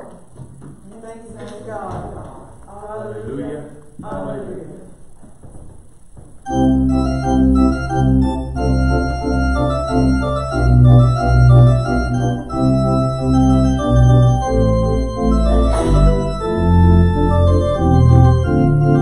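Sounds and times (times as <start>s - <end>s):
church organ playing chords: 6.4s - 19.0s.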